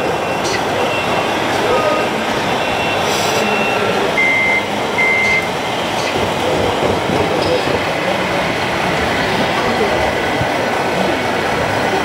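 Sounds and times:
busy hall din: 0.0 - 12.0
short electronic beeps: 2.5 - 5.5.

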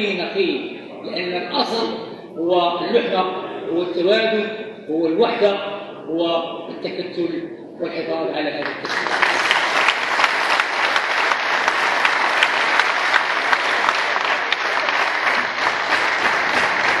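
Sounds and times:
large crowd clapping: 8.6 - 17.0.

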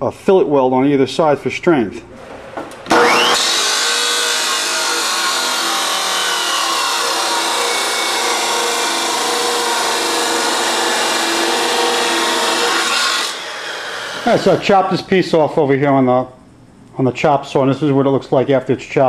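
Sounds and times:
chop saw grinding through metal: 2.9 - 14.7.

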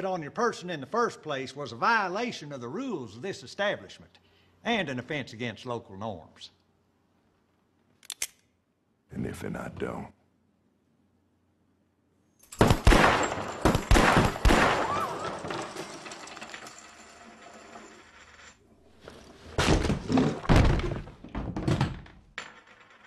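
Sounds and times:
revolver shots: 12.6 - 15.4.

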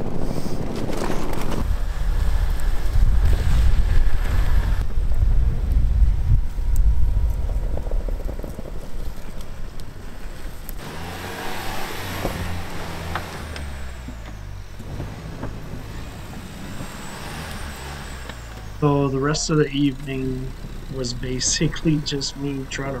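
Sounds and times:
engine driving through snow: 0.0 - 23.0
loud low rumble: 1.6 - 9.7.

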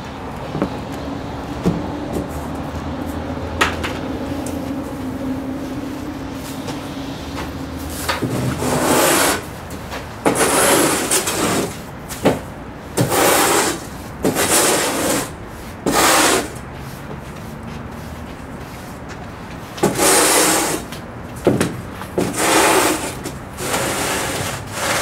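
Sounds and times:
hand brush sweeping sand: 7.9 - 9.5, 13.0 - 21.0, 22.2 - 25.0.

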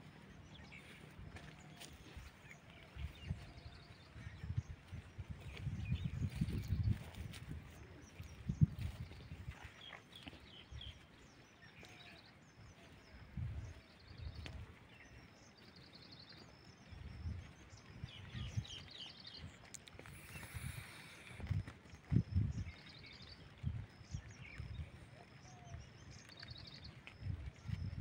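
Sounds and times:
small birds chirping: 0.0 - 28.0
low rumbles on microphone: 2.8 - 9.9, 20.1 - 25.0, 27.2 - 28.0.

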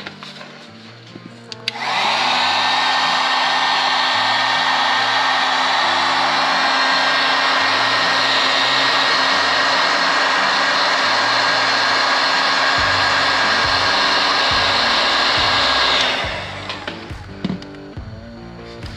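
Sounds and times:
heat gun clicks: 1.5 - 2.2
heat gun fan and motor whine: 1.5 - 17.6.

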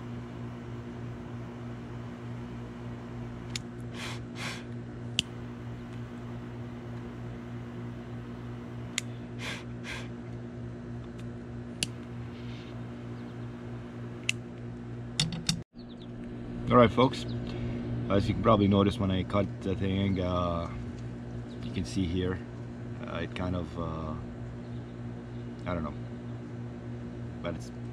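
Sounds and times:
low electrical hum: 0.0 - 27.9
short breathy puffs: 3.9 - 4.7
sharp clicks: 5.2 - 6.1.

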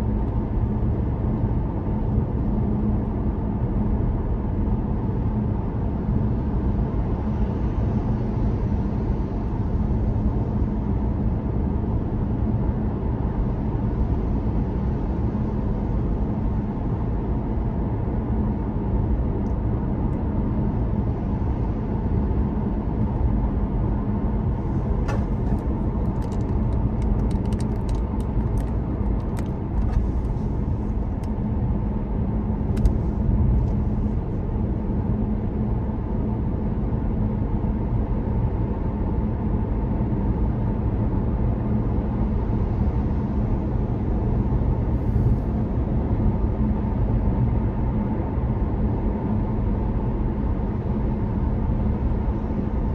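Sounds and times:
car road noise: 19.0 - 37.0.

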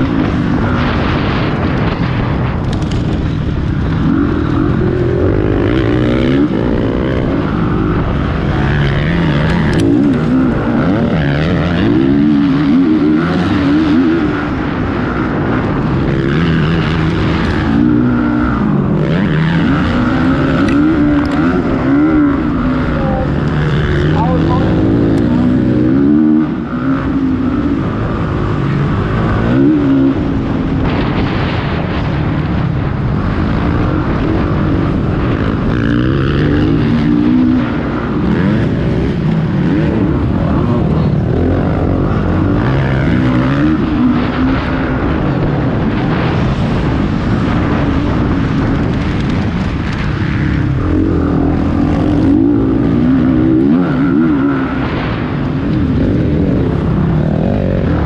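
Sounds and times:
motocross motorcycles revving: 0.0 - 58.0.

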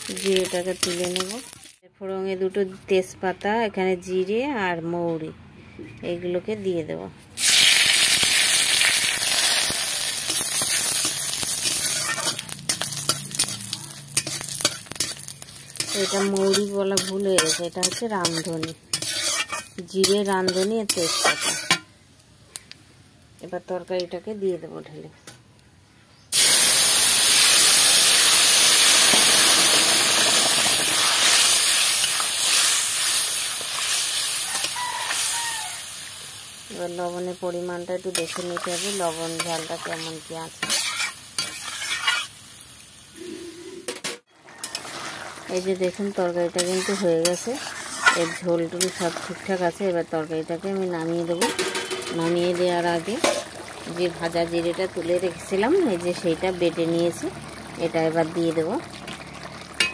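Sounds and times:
spices sizzling in hot oil: 0.0 - 1.8, 7.4 - 24.6, 26.3 - 43.6, 44.4 - 59.9
metal spatula scraping pan: 10.2 - 21.9, 38.1 - 42.3, 43.5 - 45.7, 46.4 - 49.8, 51.4 - 52.5.

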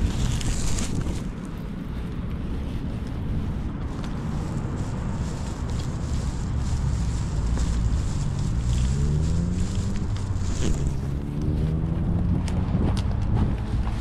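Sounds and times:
wind buffeting microphone: 0.0 - 14.0
vehicle engine accelerating: 4.5 - 14.0.

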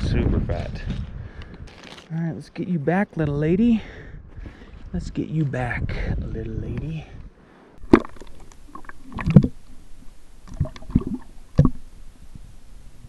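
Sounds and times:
water splashing: 7.8 - 12.0.

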